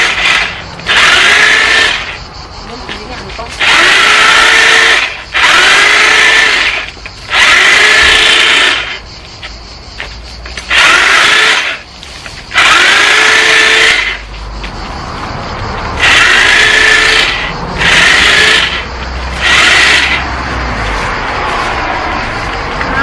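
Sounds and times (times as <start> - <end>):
electric saw whining: 0.0 - 2.2, 3.6 - 9.0, 10.6 - 11.9, 12.5 - 14.2, 16.0 - 20.5.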